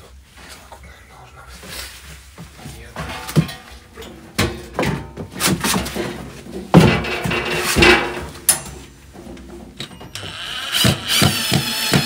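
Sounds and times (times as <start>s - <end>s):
wood stove knocking: 6.7s - 8.6s.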